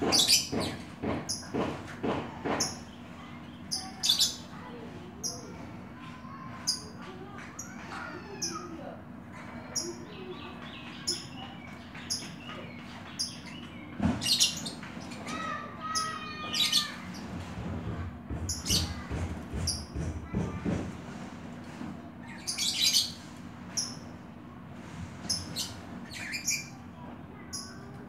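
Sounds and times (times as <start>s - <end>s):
bird song phrases: 2.6s - 17.3s, 22.2s - 24.1s, 25.2s - 28.0s.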